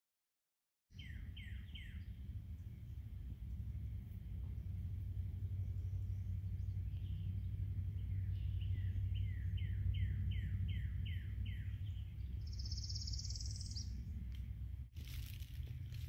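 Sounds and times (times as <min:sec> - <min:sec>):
low background rumble: 0:01.0 - 0:16.0
buzzy rising bird trill: 0:05.7 - 0:14.0.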